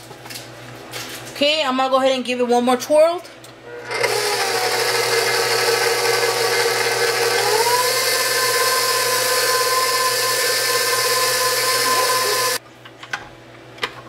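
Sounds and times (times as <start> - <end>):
stand mixer motor whining: 3.7 - 12.6.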